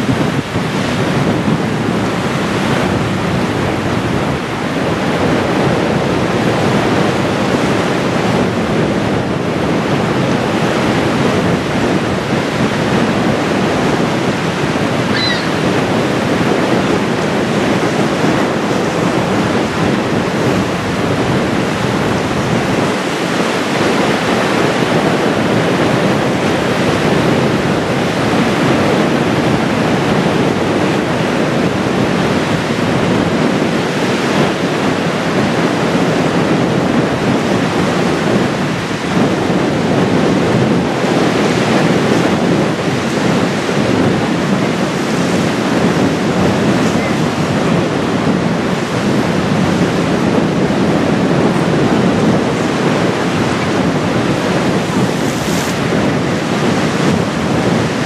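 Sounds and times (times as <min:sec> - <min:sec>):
wind on microphone: 0:00.0 - 0:58.0
water washing against rocky shore: 0:38.6 - 0:58.0.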